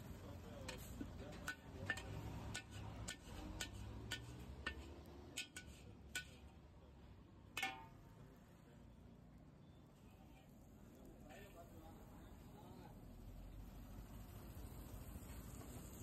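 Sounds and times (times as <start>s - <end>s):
metal spatula scraping a wok: 0.6s - 6.5s
spatula clanging in wok: 0.7s - 6.6s, 7.5s - 8.0s.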